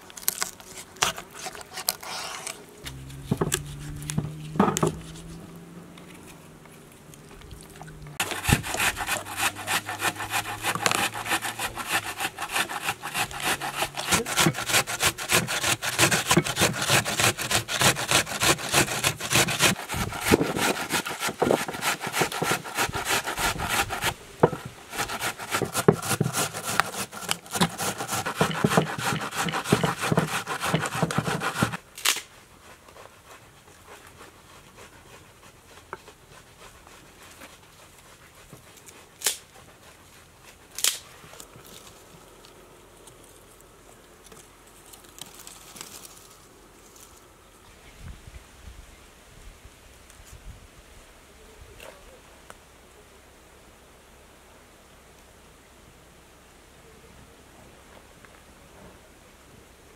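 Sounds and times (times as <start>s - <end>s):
onion grated on metal grater: 8.2s - 31.8s.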